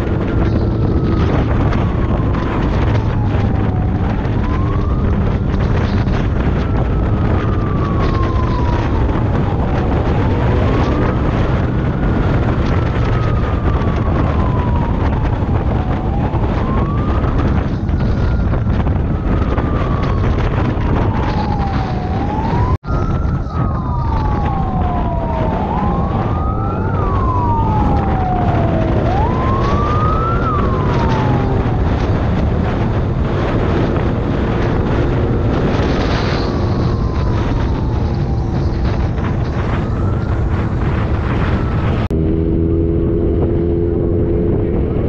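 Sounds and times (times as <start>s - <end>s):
motorcycle riding at speed: 0.0s - 45.0s
siren wailing: 0.0s - 45.0s.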